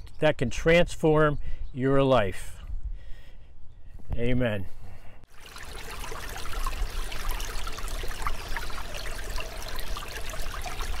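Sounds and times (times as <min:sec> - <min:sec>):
creek babbling over rocks: 0:05.3 - 0:11.0.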